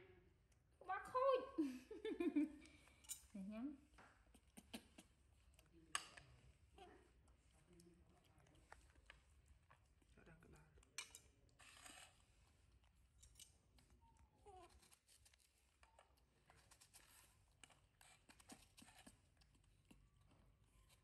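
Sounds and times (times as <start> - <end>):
fruit being bitten and chewed: 4.0 - 6.4, 11.5 - 21.0.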